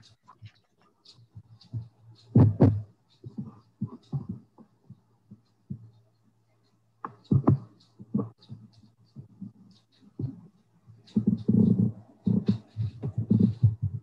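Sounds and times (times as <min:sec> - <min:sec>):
low thumps and knocks: 0:01.7 - 0:04.4.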